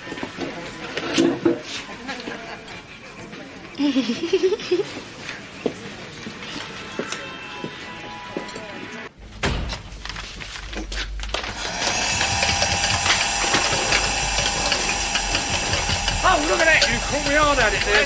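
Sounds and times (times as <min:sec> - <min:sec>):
knocks and clatters: 0:09.3 - 0:18.0
vacuum cleaner running: 0:11.4 - 0:18.0.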